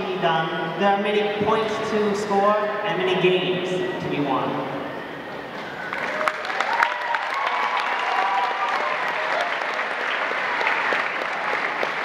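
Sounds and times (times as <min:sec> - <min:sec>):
audience cheering: 0:05.6 - 0:12.0
large audience clapping: 0:05.6 - 0:12.0.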